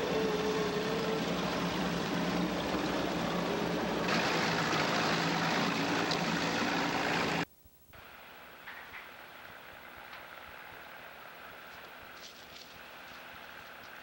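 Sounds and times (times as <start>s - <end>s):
boat engine running: 0.0s - 7.4s.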